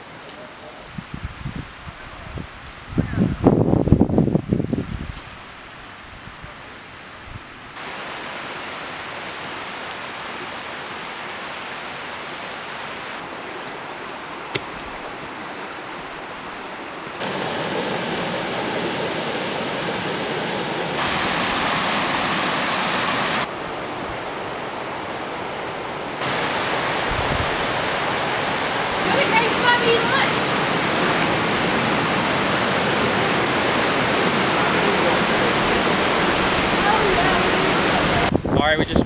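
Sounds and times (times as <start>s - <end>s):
creek water rushing over rocks: 7.8s - 38.3s.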